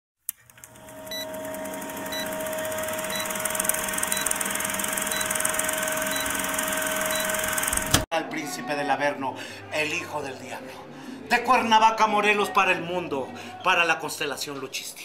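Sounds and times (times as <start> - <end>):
film projector clattering: 0.5 - 8.0.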